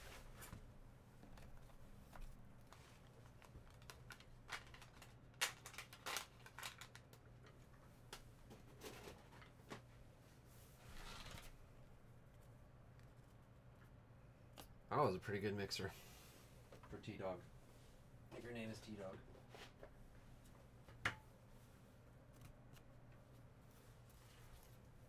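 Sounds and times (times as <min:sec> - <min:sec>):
clicks and handling noises: 0:01.2 - 0:09.9
soft rustle: 0:21.5 - 0:25.0.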